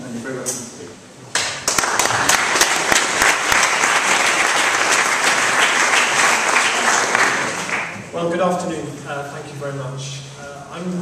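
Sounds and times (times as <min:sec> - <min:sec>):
audience applauding: 0:01.4 - 0:08.1.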